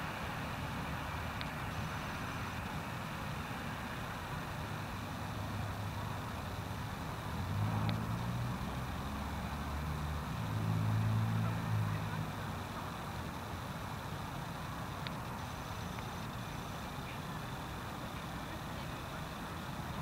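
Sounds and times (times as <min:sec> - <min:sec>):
street traffic hum: 0:00.0 - 0:20.0
vehicles passing: 0:00.0 - 0:20.0.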